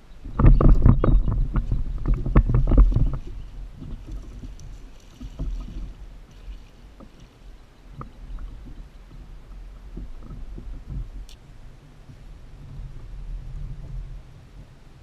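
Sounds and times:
knocks and thumps on kayak: 0.3s - 11.3s.

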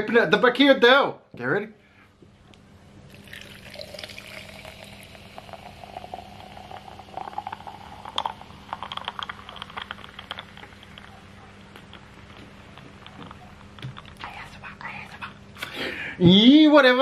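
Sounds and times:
soda pouring into glass: 3.1s - 11.3s
soda fizzing and crackling: 3.1s - 13.6s.

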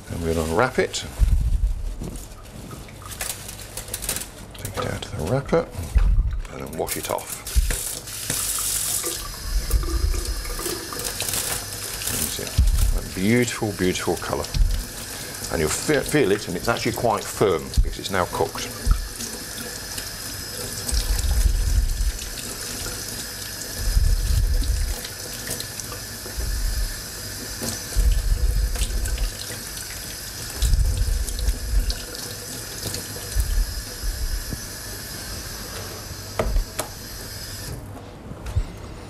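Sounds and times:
tap running into steel sink: 36.4s - 37.0s.

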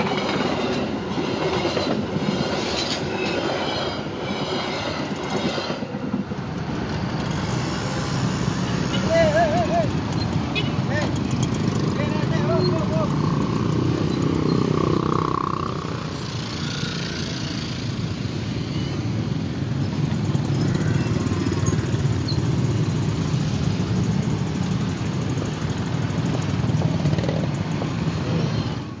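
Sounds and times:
motorcycle engines in traffic: 6.0s - 29.0s.

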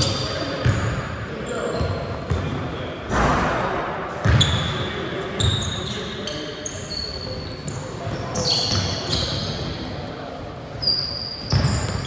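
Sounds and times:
sneaker squeaks: 0.0s - 2.6s, 4.2s - 12.0s
players' voices: 0.0s - 12.0s
ball bouncing on court: 1.8s - 4.8s, 11.4s - 12.0s.

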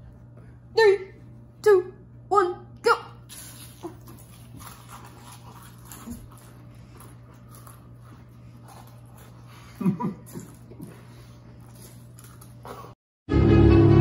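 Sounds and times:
people chewing crackers: 3.3s - 13.0s.

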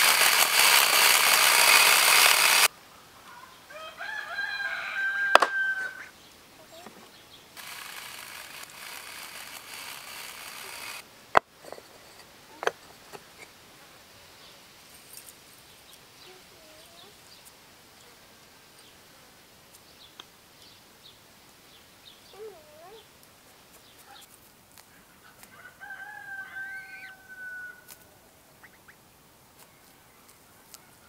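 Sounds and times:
chainsaw running: 0.0s - 2.7s, 7.6s - 11.0s
sharp clicks: 0.0s - 2.7s, 7.6s - 11.5s
rooster crowing: 3.3s - 6.1s, 25.5s - 27.9s.

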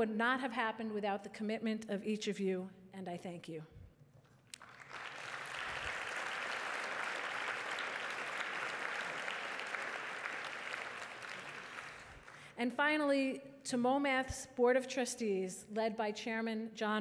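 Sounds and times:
audience applauding: 4.5s - 12.5s.

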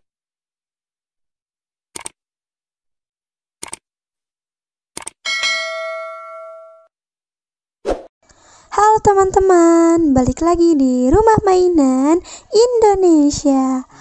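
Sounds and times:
sharp double clicks: 2.0s - 2.2s, 3.6s - 3.8s, 5.0s - 5.2s
bell-like ding: 5.3s - 6.9s.

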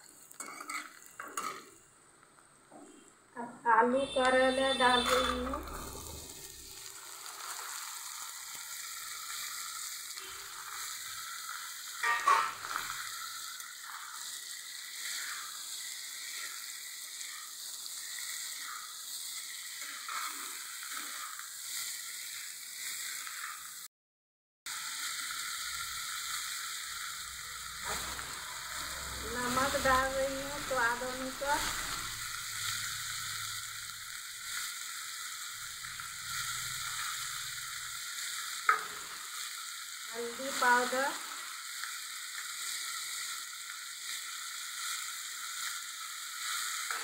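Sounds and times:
spatula stirring and scraping: 0.0s - 1.8s, 4.6s - 23.8s, 25.1s - 33.8s, 35.8s - 41.1s
vegetables sizzling in hot oil: 0.0s - 23.9s, 24.7s - 47.0s.

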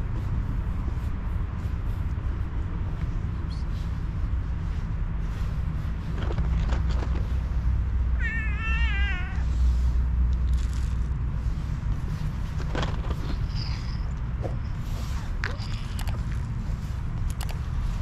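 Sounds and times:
cat meowing: 8.1s - 9.5s, 15.4s - 16.3s.

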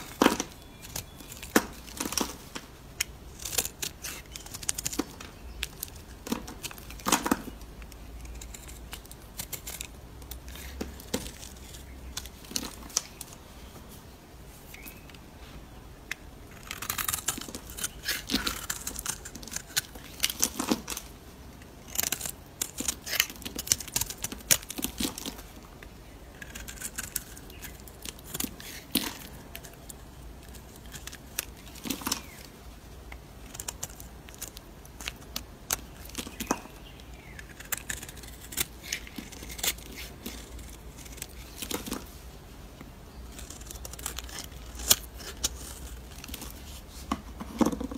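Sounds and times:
knife blade scraping soap: 5.6s - 11.9s, 16.5s - 20.6s, 37.3s - 42.0s.

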